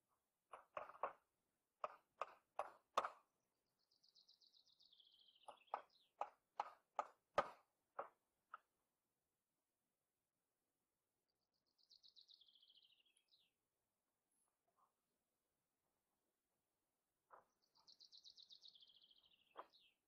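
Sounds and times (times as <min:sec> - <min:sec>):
hammer driving nails into wood: 0:01.8 - 0:03.2, 0:05.7 - 0:08.2.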